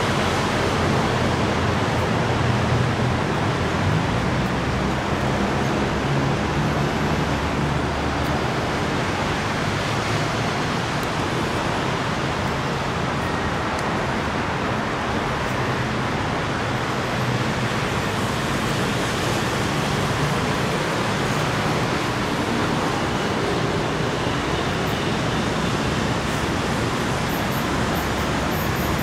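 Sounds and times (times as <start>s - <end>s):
city road traffic roar: 0.0s - 29.0s.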